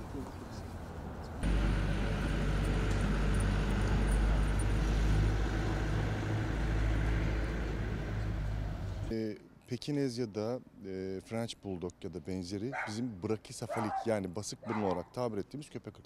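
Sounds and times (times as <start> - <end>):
low outdoor rumble: 0.1 - 9.1.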